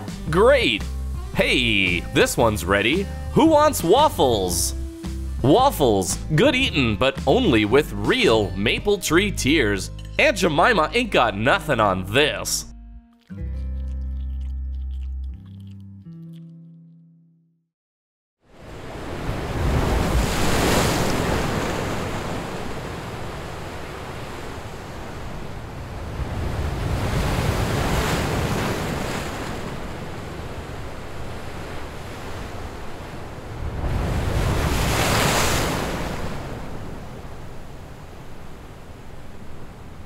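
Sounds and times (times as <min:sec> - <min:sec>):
wind: 0:18.4 - 0:40.0
waves washing in: 0:18.5 - 0:40.0.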